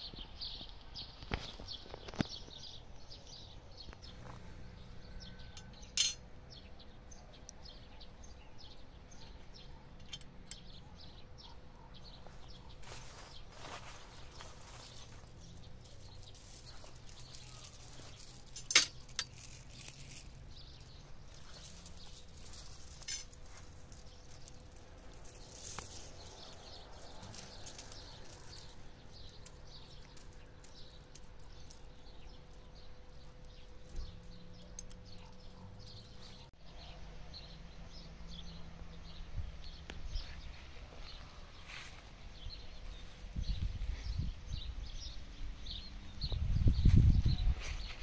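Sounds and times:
metal chain clinks: 5.4 - 6.3, 10.0 - 10.8, 12.8 - 36.5.

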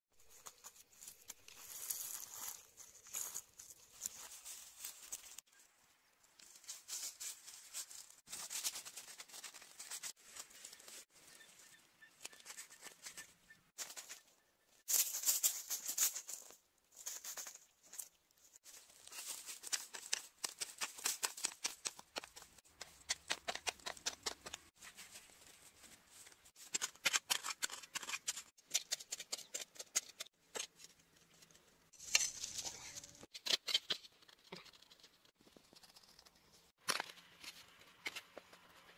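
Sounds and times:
hands rustling through dry grass: 0.2 - 5.5, 6.4 - 14.3, 14.9 - 21.7.

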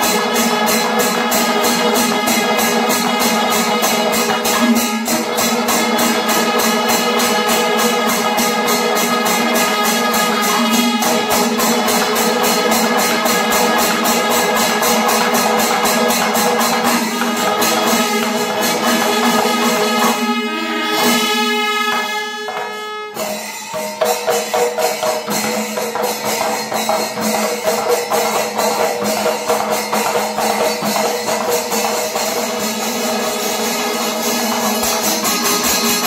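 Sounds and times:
cymbals: 0.0 - 36.0
rapid drum strokes: 0.0 - 36.0
held horn notes: 17.0 - 23.4.

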